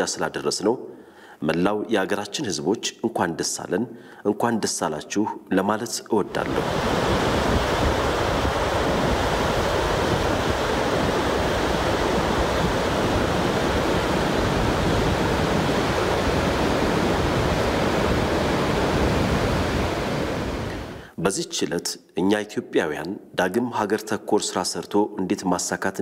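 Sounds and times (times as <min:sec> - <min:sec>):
water rushing over dam: 0:06.3 - 0:21.0.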